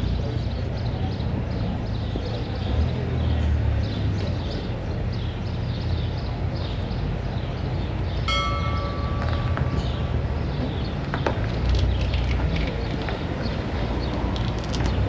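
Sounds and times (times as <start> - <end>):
bell ringing: 8.3 - 10.8.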